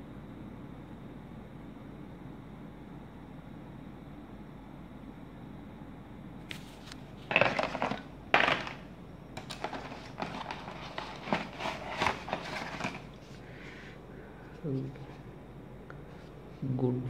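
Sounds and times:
shaver scraping in plastic tray: 0:09.4 - 0:13.2.

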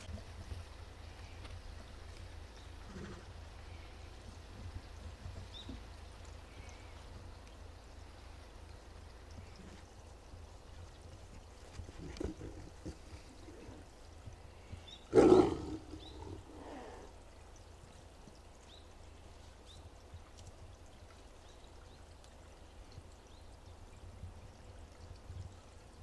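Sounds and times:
tiger roaring: 0:15.1 - 0:17.1.

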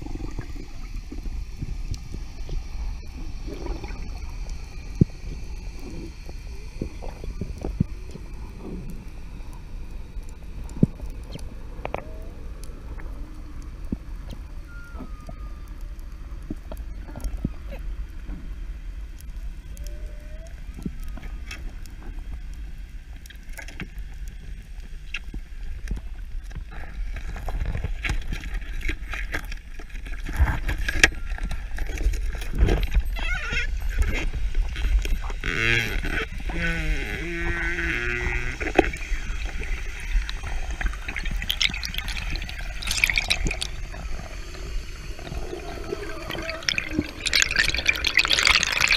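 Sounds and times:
underwater clicks and crackles: 0:00.0 - 0:48.9
underwater rumble of moving water: 0:00.0 - 0:48.9
short warbling tone: 0:45.0 - 0:48.9.

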